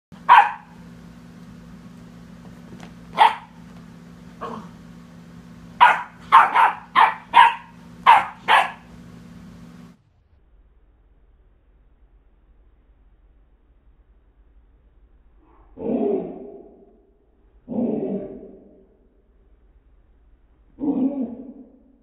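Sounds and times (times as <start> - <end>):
steady low hum: 0.1 - 22.0
puppy barking: 0.2 - 0.8, 3.1 - 3.6, 5.8 - 8.9.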